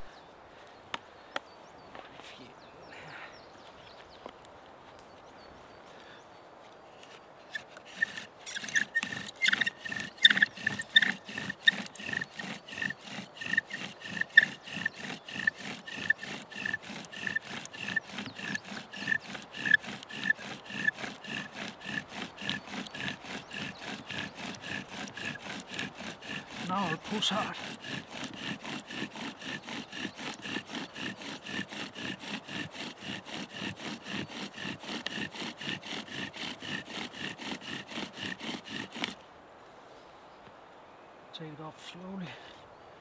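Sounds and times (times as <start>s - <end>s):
wooden bow drill squeaking: 7.0s - 39.2s.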